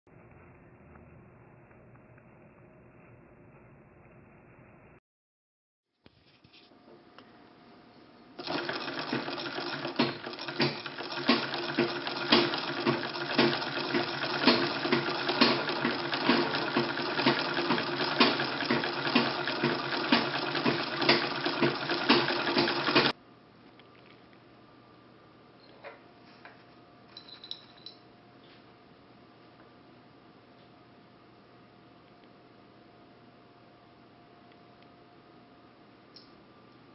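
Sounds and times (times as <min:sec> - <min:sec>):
sewing machine whirring and rattling: 0:08.4 - 0:23.2.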